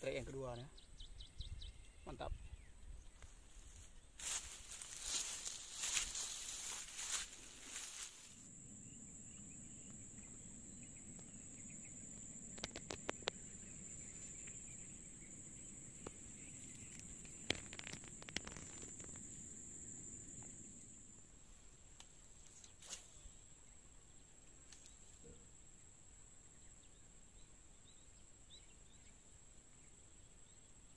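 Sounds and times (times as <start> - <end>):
riverside ambience: 3.0 - 23.2
rustling handling noise: 3.6 - 8.4
sharp clicks: 12.5 - 13.4.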